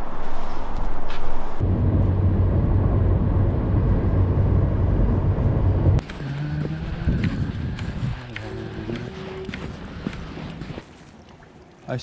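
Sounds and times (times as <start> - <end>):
quiet outdoor ambience: 0.0 - 5.2
car engine and road hum: 0.0 - 10.8.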